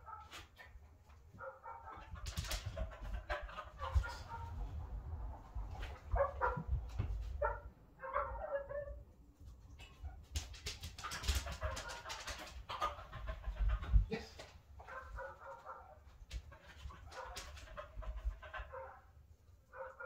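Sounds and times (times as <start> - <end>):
clicks and rustles: 9.7 - 12.6.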